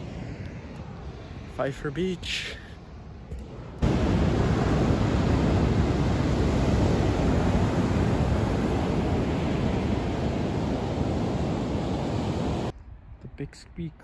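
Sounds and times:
ocean surf breaking on beach: 0:03.8 - 0:12.7.

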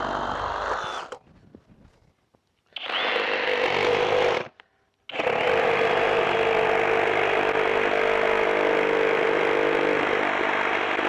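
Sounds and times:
reciprocating saw cutting wood: 0:00.0 - 0:01.2, 0:02.8 - 0:04.5, 0:05.1 - 0:11.0.

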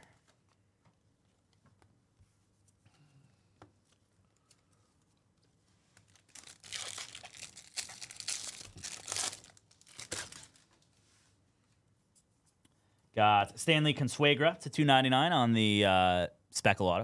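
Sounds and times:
foil wrapper crinkling and tearing: 0:06.0 - 0:10.7.

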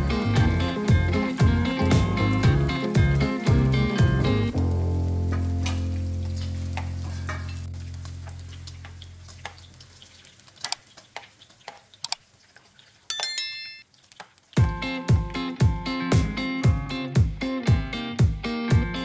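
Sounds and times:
faint oil sizzle: 0:00.0 - 0:13.1, 0:13.8 - 0:15.4
short bright chime: 0:13.1 - 0:13.8.

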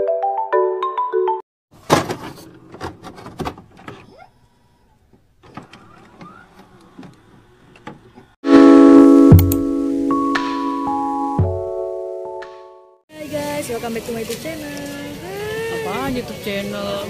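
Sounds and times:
loud keyboard music: 0:08.4 - 0:13.0.

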